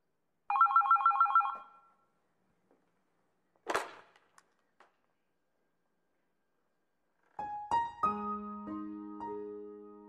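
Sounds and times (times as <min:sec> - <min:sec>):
electronic telephone ringing trill: 0:00.5 - 0:01.8.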